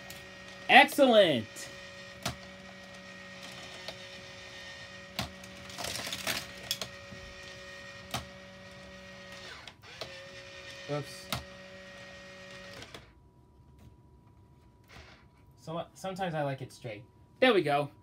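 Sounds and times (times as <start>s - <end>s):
toy motor humming: 0.0s - 13.0s
toy cars rattling on plastic track: 5.2s - 7.0s.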